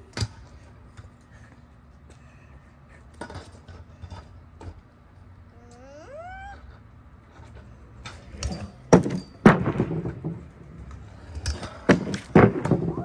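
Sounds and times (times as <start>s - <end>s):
kick scooters knocking and clattering: 3.1s - 4.9s, 7.4s - 13.0s.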